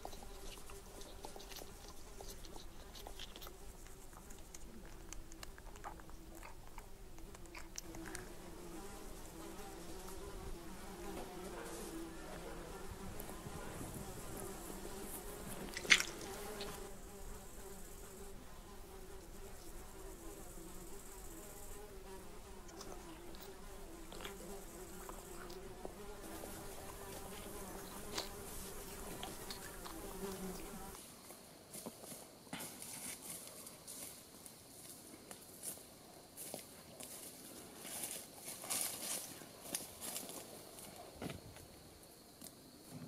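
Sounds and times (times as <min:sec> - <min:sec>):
flies buzzing: 0:00.0 - 0:31.0.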